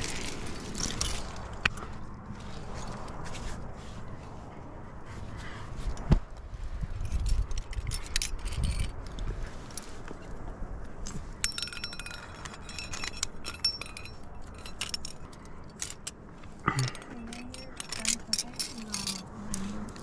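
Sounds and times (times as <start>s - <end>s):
metal climbing gear clinking: 0.0s - 3.2s, 6.8s - 10.4s, 11.0s - 20.0s.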